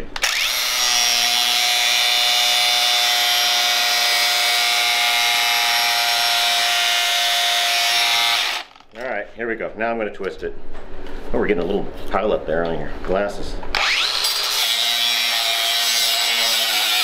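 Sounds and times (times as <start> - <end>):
angle grinder cutting steel: 0.1 - 8.8, 13.8 - 17.0.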